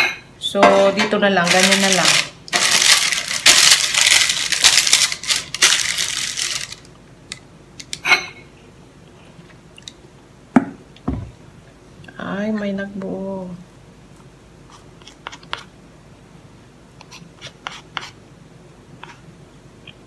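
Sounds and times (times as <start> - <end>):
baking paper crinkling: 1.3 - 6.9.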